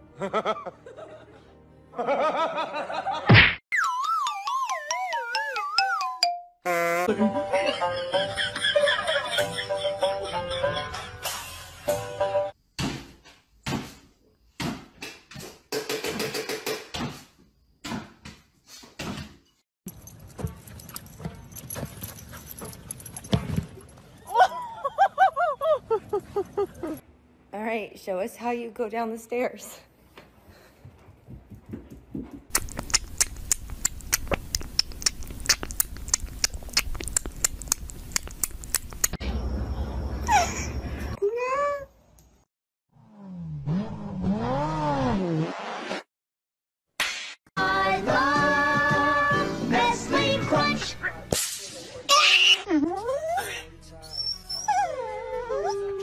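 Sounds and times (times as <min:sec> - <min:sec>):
cat sucking on a bottle: 0:32.5 - 0:39.1.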